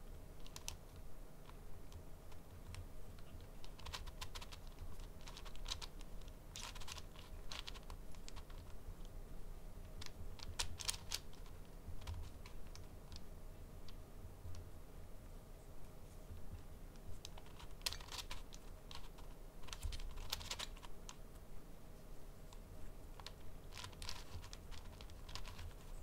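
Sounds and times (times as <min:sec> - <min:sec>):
plastic puzzle cube clicking: 0:02.6 - 0:08.8, 0:10.0 - 0:13.2, 0:17.2 - 0:21.2, 0:23.2 - 0:26.0.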